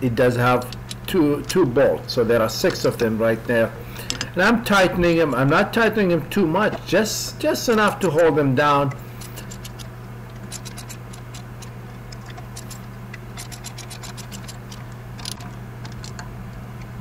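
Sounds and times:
steady low hum: 0:00.0 - 0:17.0
socket ratchet clicking: 0:09.2 - 0:16.3.

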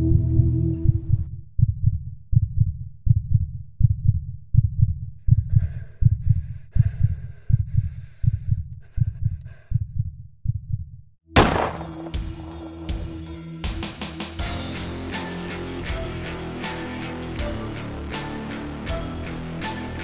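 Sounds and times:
heartbeat thumps: 0:00.0 - 0:14.6.

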